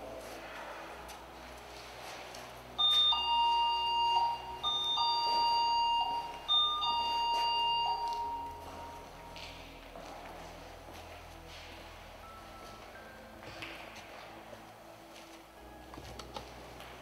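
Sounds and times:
electronic two-tone chime: 2.8 - 9.4.

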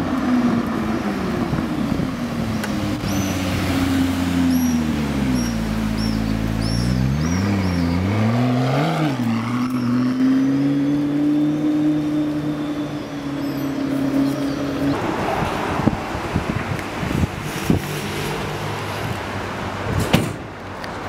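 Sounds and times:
car engine revving: 2.8 - 18.8.

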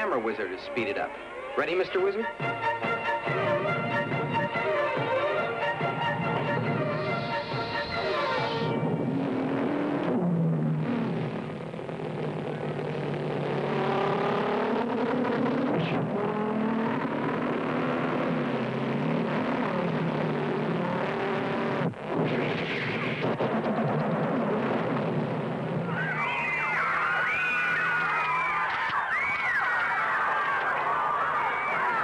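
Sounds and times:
engine revving: 3.2 - 25.8.

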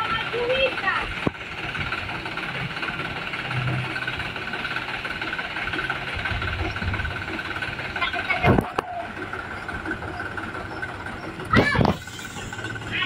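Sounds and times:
truck engine running at low revs: 0.0 - 13.0.

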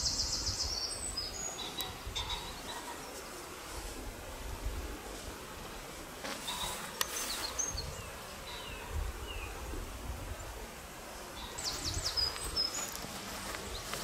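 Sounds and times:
small birds chirping: 0.0 - 3.5, 6.4 - 9.6, 11.2 - 14.0.

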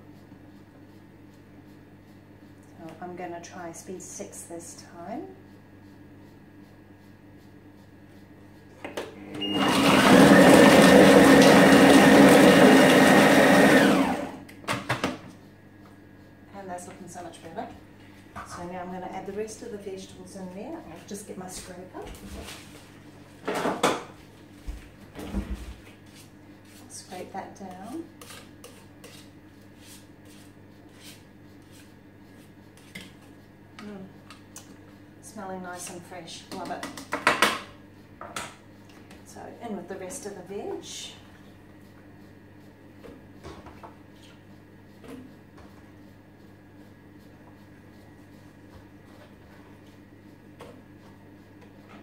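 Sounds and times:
kitchen machine motor whirring: 9.0 - 15.0
spatula scraping metal bowl: 26.1 - 33.3.

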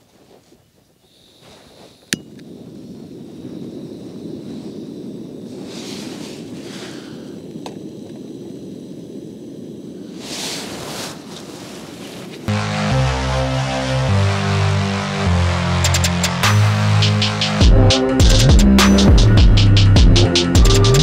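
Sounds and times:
gas burner rushing: 2.0 - 12.5
rustling: 10.0 - 12.5.

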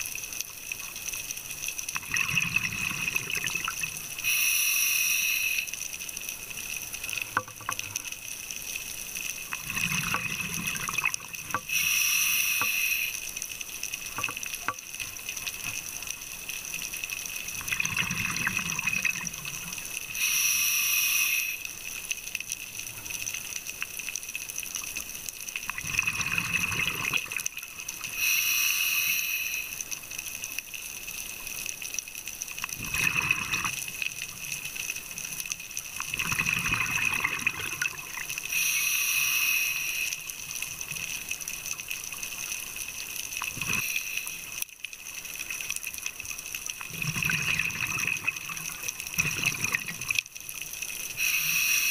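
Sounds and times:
exhaust bubbling underwater: 2.0 - 3.9, 9.5 - 11.7, 17.6 - 19.6, 25.7 - 27.4, 36.0 - 38.3, 46.9 - 50.1
regulator hissing on inhale: 4.2 - 6.0, 11.5 - 13.4, 20.0 - 21.8, 28.0 - 30.0, 38.4 - 40.6, 43.6 - 44.6, 51.1 - 51.9.

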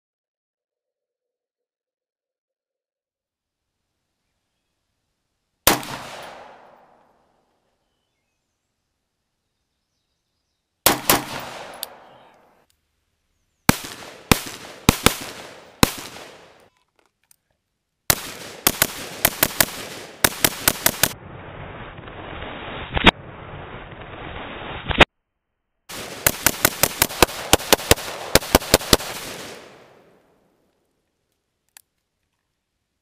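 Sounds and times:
rifle gunshots: 5.7 - 7.0, 10.8 - 12.3, 13.7 - 16.7, 18.1 - 21.2, 25.9 - 30.2.

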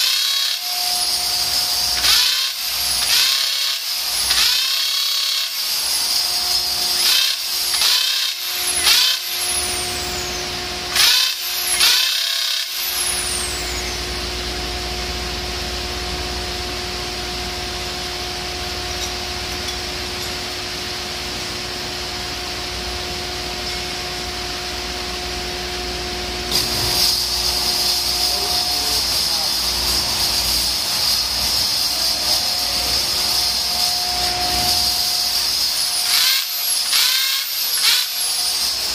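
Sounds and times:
electric drill cutting metal: 0.0 - 14.0, 26.4 - 38.9
steady machine hum: 0.0 - 38.9.

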